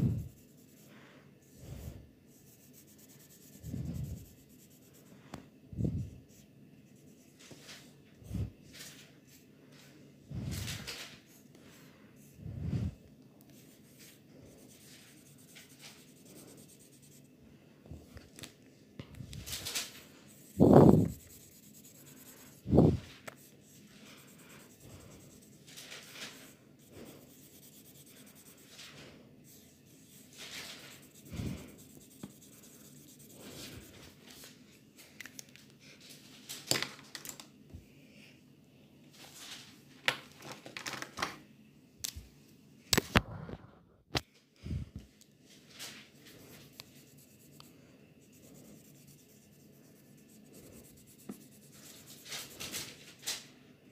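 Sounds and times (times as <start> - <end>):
pen scratching on paper: 2.3 - 5.0, 13.5 - 17.3, 20.3 - 34.1, 46.4 - 52.8.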